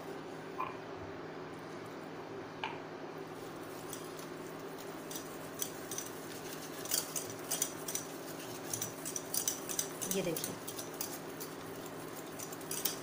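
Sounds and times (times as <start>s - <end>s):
steady hum: 0.0s - 13.0s
whisk clinking against metal bowl: 3.6s - 13.0s.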